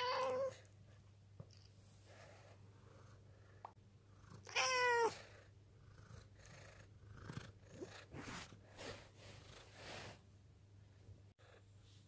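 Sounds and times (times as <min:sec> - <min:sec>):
cat meowing: 0:00.0 - 0:00.6, 0:04.4 - 0:05.2.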